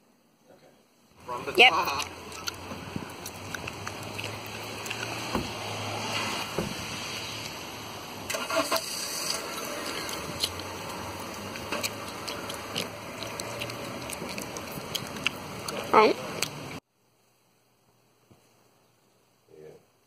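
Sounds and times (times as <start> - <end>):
car engine running: 1.2 - 16.8
knocks and rustles inside car: 5.2 - 5.6, 6.4 - 6.9
car door thudding shut: 5.3 - 5.6, 6.4 - 6.9.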